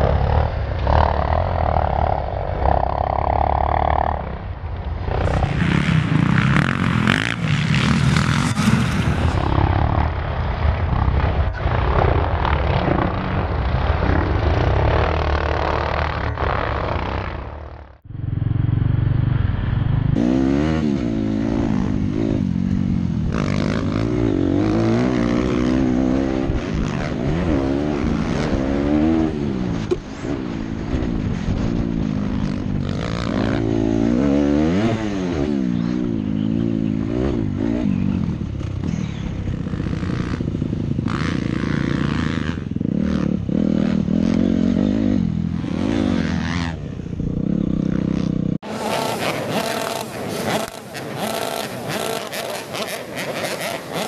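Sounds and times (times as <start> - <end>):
dirt bike engine revving: 0.0 - 54.0
clatter of riding over rough dirt: 21.8 - 54.0.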